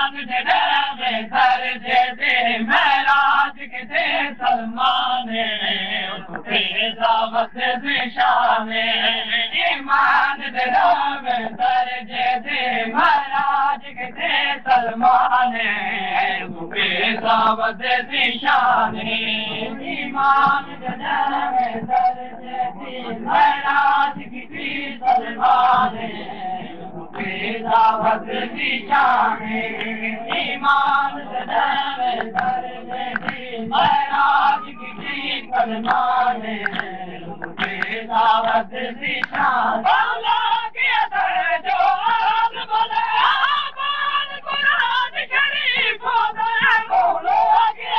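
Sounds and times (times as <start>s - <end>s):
men chanting in chorus: 0.0s - 47.9s
hands slapping chests: 32.2s - 35.1s, 35.8s - 38.6s, 39.2s - 39.6s.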